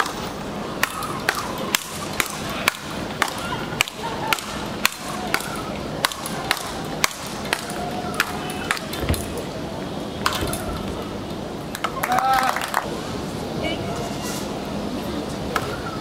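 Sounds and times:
rackets striking ball: 0:00.0 - 0:09.4.

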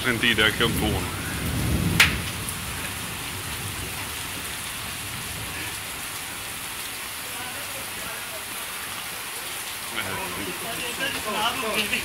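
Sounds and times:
torrential rain pouring: 0:00.0 - 0:12.0
thunder rumble: 0:00.2 - 0:06.1.

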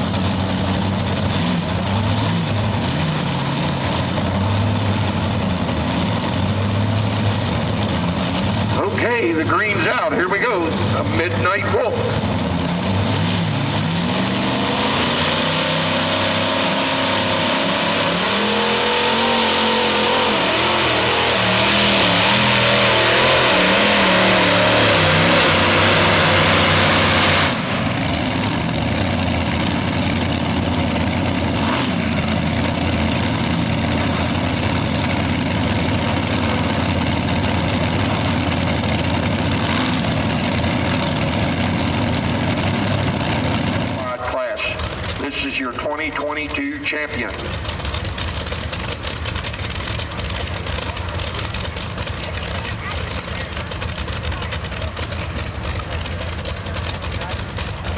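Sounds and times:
tractor engines at full throttle: 0:00.0 - 0:57.9.

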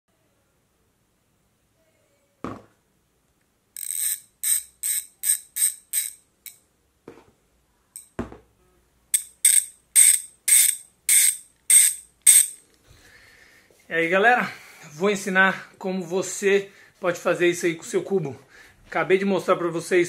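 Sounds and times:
handling knocks: 0:02.4 - 0:02.8, 0:08.2 - 0:08.5
bicycle hub ratcheting: 0:03.8 - 0:06.6, 0:09.1 - 0:12.6.

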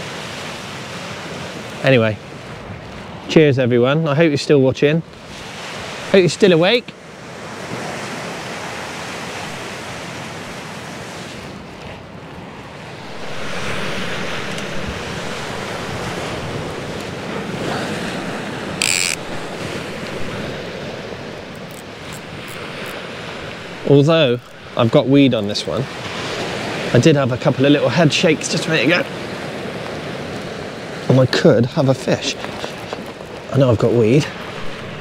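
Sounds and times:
sea surf washing on shore: 0:00.0 - 0:35.0
wind buffeting microphone: 0:07.2 - 0:27.5, 0:32.0 - 0:35.0.

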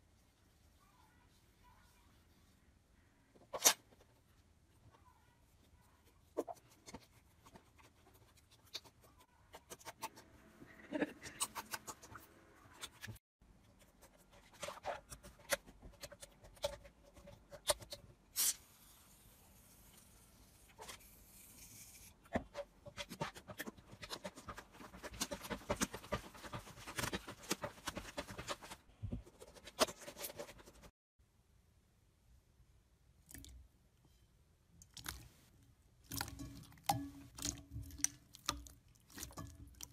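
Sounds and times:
hands squeezing sticky slime: 0:36.0 - 0:39.9.

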